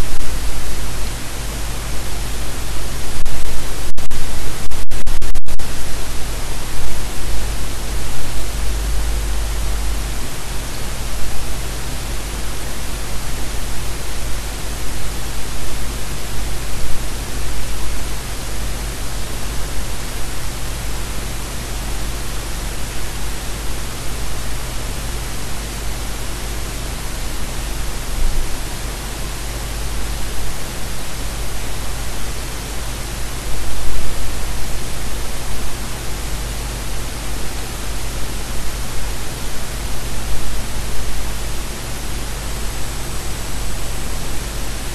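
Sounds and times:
low steady rumble: 0:00.0 - 0:24.1
steady broadband hiss: 0:00.0 - 0:44.9.

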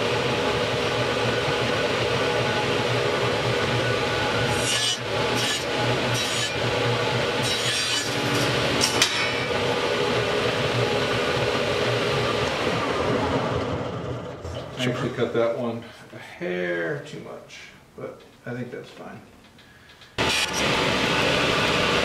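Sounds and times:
table saw running: 0:00.0 - 0:14.6, 0:20.2 - 0:22.0
saw blade cutting wood: 0:04.3 - 0:09.6, 0:20.2 - 0:20.7.

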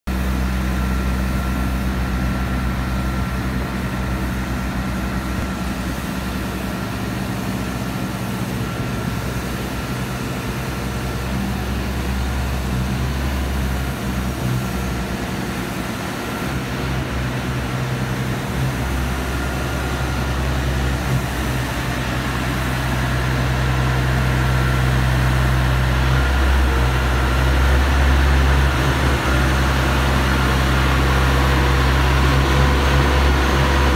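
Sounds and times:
diesel engine drone: 0:00.1 - 0:33.9
steady high whine: 0:00.1 - 0:33.9.

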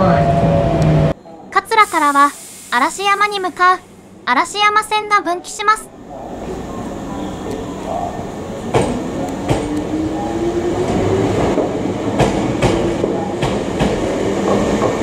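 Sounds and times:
train rumble: 0:05.8 - 0:15.0
train wheels clacking over rail joints: 0:08.7 - 0:09.8, 0:11.6 - 0:15.0.

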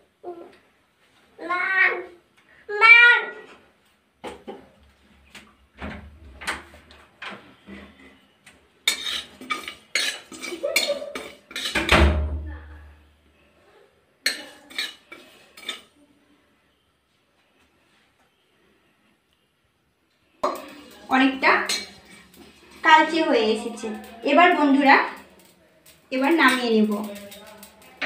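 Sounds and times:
metal spatula scraping pan: 0:08.8 - 0:11.9, 0:14.2 - 0:15.9, 0:20.4 - 0:28.0.

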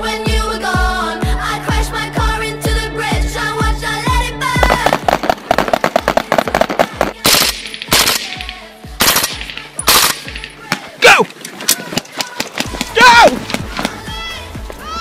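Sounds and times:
background music: 0:00.0 - 0:15.0
rifle gunshots: 0:04.6 - 0:10.5.

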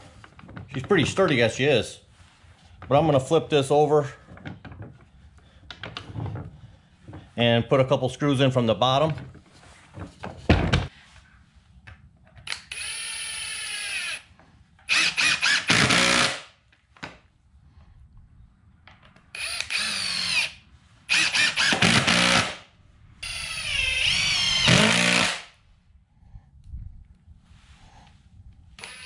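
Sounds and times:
cordless drill driving screws: 0:12.5 - 0:14.2, 0:14.9 - 0:16.4, 0:19.3 - 0:22.6, 0:23.2 - 0:25.5, 0:28.8 - 0:29.0.

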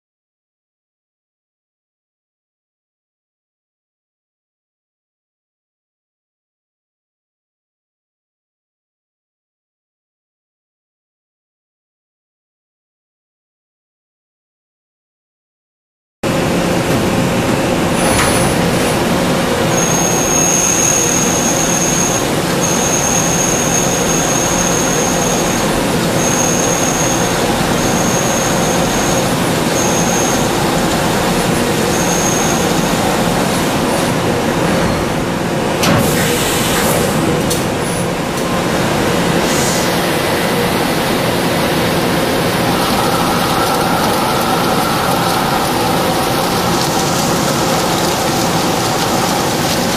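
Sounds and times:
machine cutting under coolant spray: 0:16.3 - 0:34.7, 0:35.6 - 0:49.9
high-pitched machine whine: 0:16.3 - 0:49.9.

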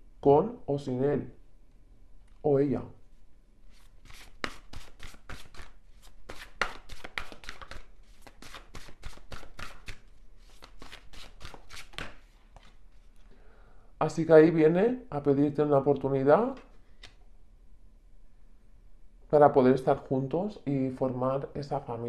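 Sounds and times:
cards being shuffled: 0:03.7 - 0:13.2, 0:16.5 - 0:17.2.

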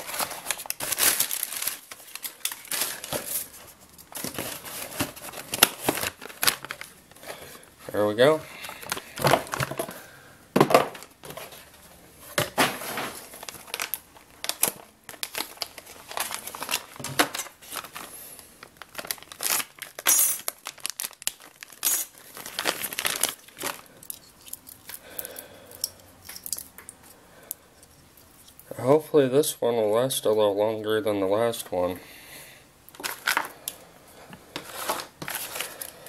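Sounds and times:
plastic packaging crinkling and tearing: 0:00.0 - 0:09.9, 0:12.7 - 0:25.3, 0:32.9 - 0:33.8, 0:34.5 - 0:36.0.

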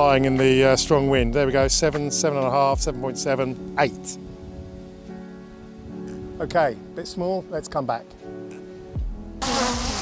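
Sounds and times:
wind rumbling on microphone: 0:04.2 - 0:06.6
drone propellers buzzing: 0:09.4 - 0:10.0.

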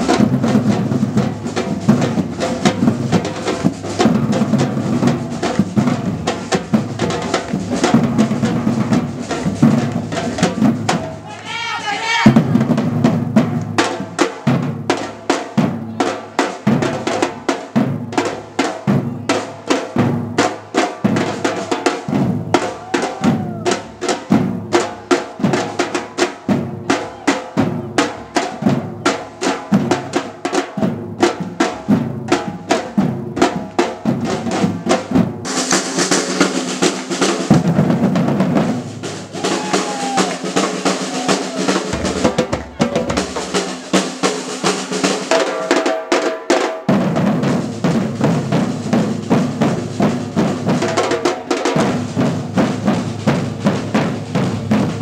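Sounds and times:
bass drums beating: 0:00.0 - 0:11.3, 0:22.0 - 0:24.8, 0:30.8 - 0:45.3
drum roll: 0:00.0 - 0:55.0
snare drums beating: 0:00.0 - 0:55.0.

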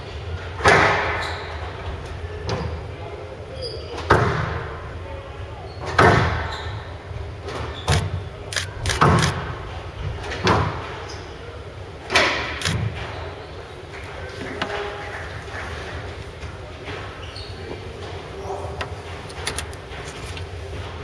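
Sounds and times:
squash ball hitting rackets and walls: 0:00.6 - 0:01.2, 0:04.0 - 0:04.7, 0:05.8 - 0:06.5.

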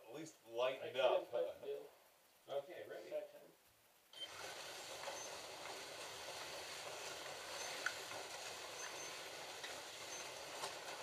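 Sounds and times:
slot cars whirring on track: 0:04.3 - 0:11.0.

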